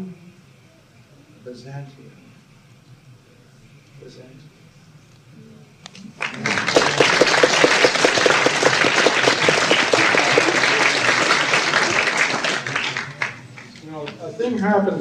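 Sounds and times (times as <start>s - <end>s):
audience applauding: 6.2s - 13.8s.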